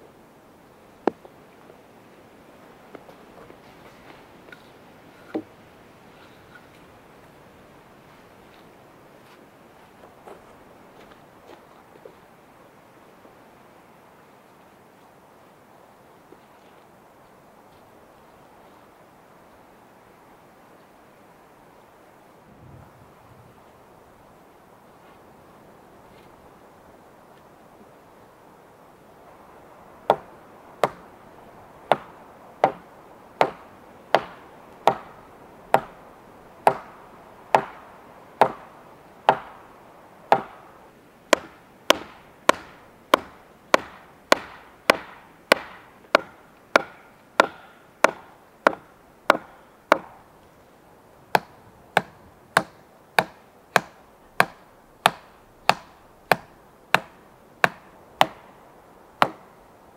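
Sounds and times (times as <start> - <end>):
hand tool striking wood: 31.9 - 32.8, 33.4 - 35.1, 37.6 - 37.8, 39.3 - 39.6, 40.3 - 40.6, 41.3 - 50.2, 51.4 - 58.4, 59.2 - 59.4.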